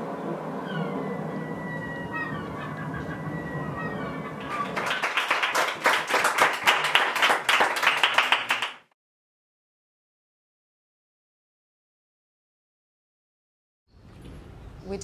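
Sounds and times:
audience applauding: 4.3s - 8.9s.

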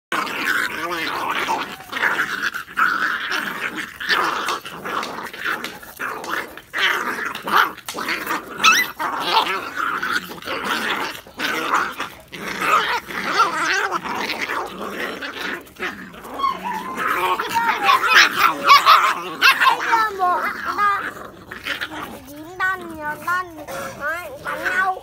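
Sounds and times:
puppies growling and snarling: 0.1s - 25.0s
puppy high rising cry: 16.1s - 21.2s.

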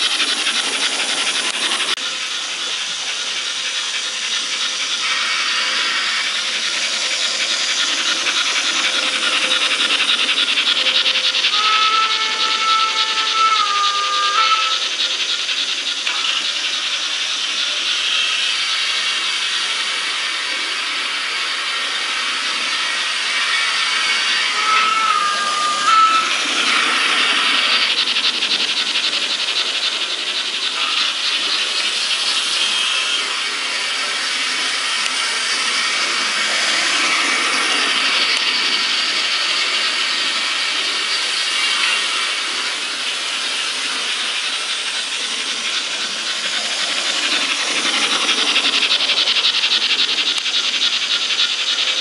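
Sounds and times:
model steam locomotive chuffing: 0.0s - 52.0s
short whistle blast: 24.6s - 26.4s.

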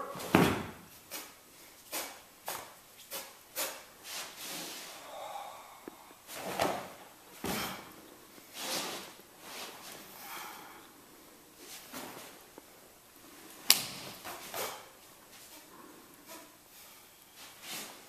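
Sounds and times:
bare feet stamping on mat: 0.2s - 0.9s
uniform snapping: 13.6s - 14.8s.

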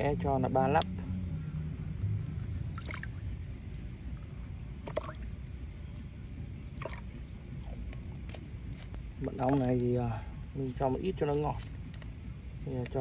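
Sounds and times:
low steady rumble: 0.0s - 13.0s
liquid splashing into water: 2.7s - 3.2s, 4.8s - 5.3s, 6.8s - 7.2s.

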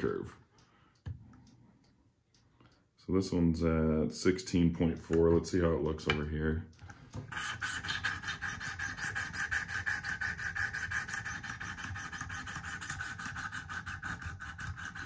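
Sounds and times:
sharpening stone rubbing knife blade: 7.3s - 15.0s.

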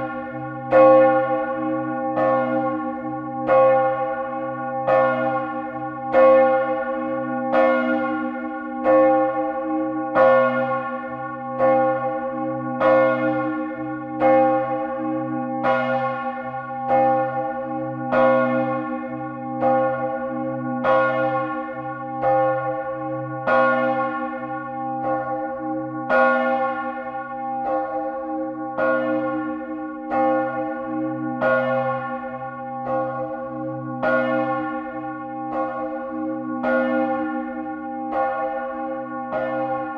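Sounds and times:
church bell ringing: 0.0s - 39.9s.

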